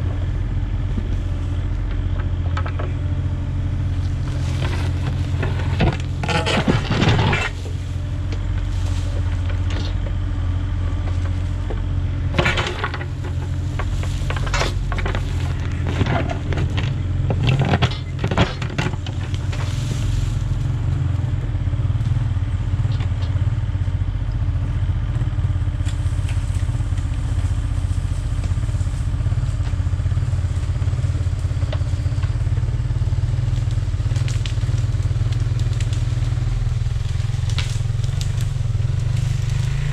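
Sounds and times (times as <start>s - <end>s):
diesel engine running: 0.0s - 39.9s
bucket scraping soil and stones: 3.8s - 10.1s, 10.8s - 21.1s.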